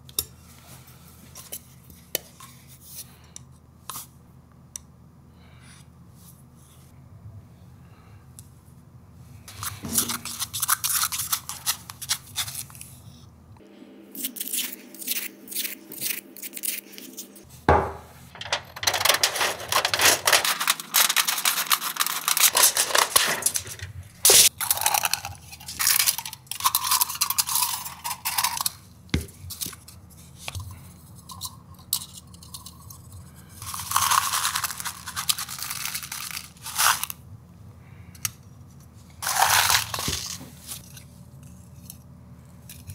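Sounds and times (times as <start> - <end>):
shears cutting foil: 9.5 - 12.8, 14.2 - 17.4, 18.3 - 28.7, 33.6 - 37.1, 39.2 - 40.9.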